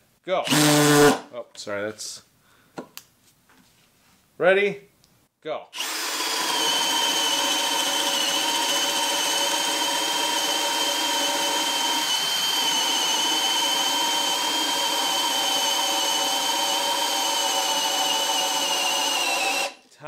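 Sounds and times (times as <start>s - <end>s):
hammer drill boring into wood: 0.4s - 1.2s, 5.8s - 19.8s.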